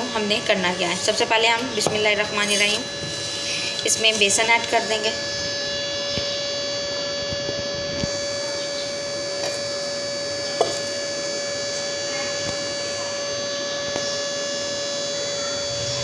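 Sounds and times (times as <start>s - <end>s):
electrical hum with whining tones: 0.0s - 16.0s.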